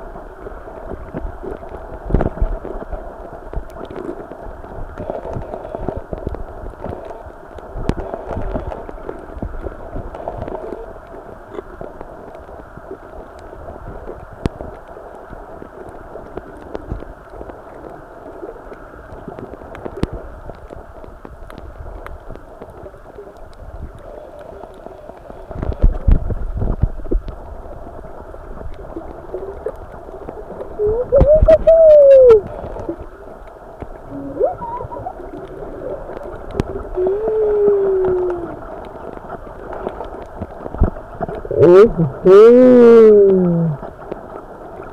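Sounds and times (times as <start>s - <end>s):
underwater rush: 0.0s - 44.9s.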